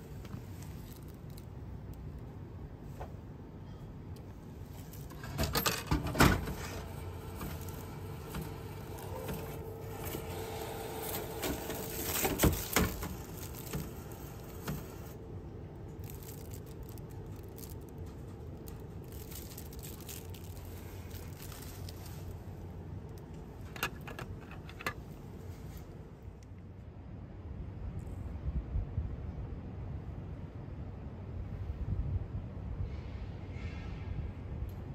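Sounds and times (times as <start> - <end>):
vending machine hum: 0.0 - 26.4
vending machine can clunks: 5.1 - 10.2.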